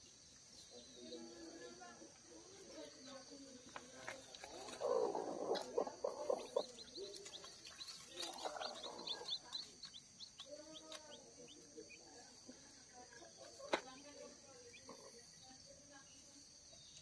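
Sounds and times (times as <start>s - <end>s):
hen clucking: 4.4s - 12.1s
chicks peeping: 4.4s - 13.8s.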